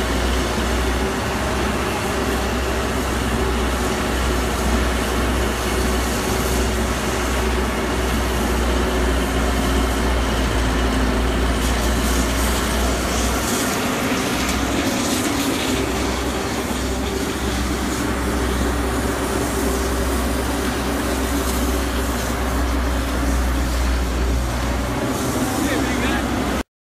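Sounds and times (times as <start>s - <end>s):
excavator hydraulics digging: 0.0s - 26.6s
diesel engine running under load: 0.0s - 26.7s.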